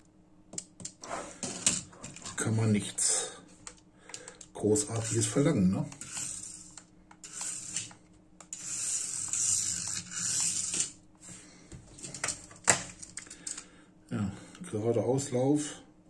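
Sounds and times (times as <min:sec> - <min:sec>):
tiny electric motor whirring: 0:06.0 - 0:10.9.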